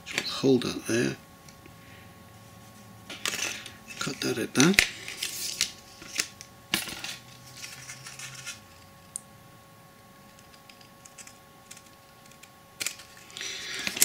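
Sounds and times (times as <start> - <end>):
card clicks and rustles: 10.3 - 14.0.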